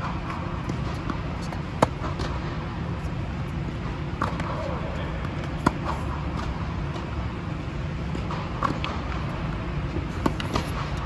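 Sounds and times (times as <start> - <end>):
racket striking tennis ball: 0.0 - 2.4, 5.4 - 6.6, 10.0 - 11.0
tennis ball bouncing: 0.0 - 4.6, 5.2 - 7.2, 9.9 - 11.0
steady low hum: 0.0 - 11.0.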